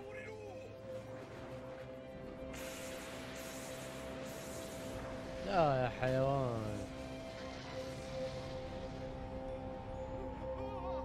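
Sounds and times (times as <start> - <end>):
steady hissing: 2.5 - 5.7.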